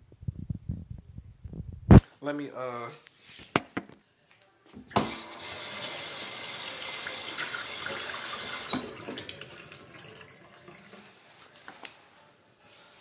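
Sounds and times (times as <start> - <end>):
water running into sink: 4.9 - 11.2.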